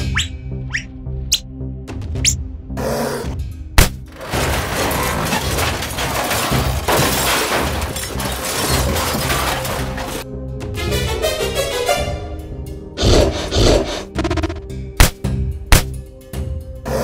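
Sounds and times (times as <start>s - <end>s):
background music: 0.0s - 17.0s
plastic toys crashing: 3.8s - 10.3s.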